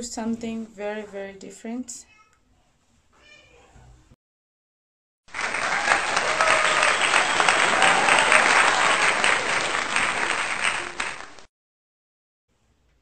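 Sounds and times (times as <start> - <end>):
crowd applause: 5.3 - 11.5.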